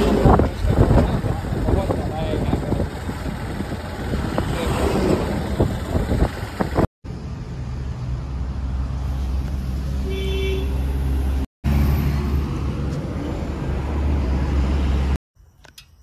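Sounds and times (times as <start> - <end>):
wind and motorcycle road rumble: 0.0 - 11.4
motorcycle horn toot: 10.0 - 10.8.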